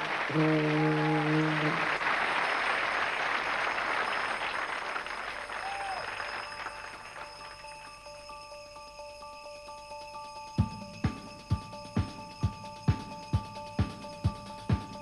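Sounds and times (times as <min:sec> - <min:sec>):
audience applauding: 0:00.0 - 0:08.2
faint chiming tones: 0:00.0 - 0:15.0.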